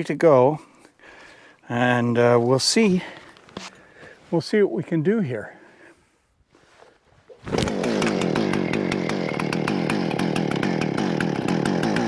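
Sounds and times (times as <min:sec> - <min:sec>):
chainsaw cutting log: 0:07.4 - 0:12.0.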